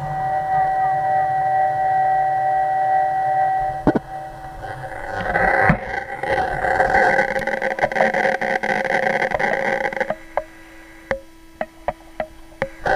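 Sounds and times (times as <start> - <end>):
drone motors whining: 3.4 - 12.9.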